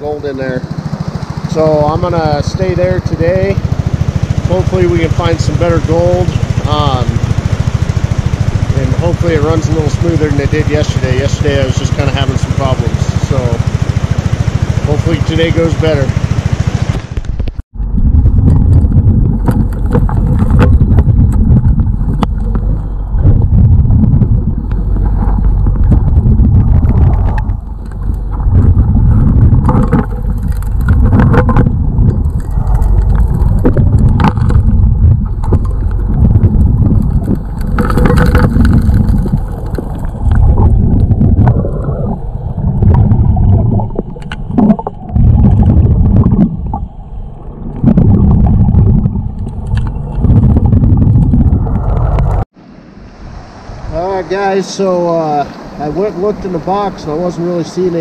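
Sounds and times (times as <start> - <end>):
underwater dredge rumble: 0.0 - 58.0
gravel and stones clicking: 18.3 - 46.9, 47.8 - 52.4.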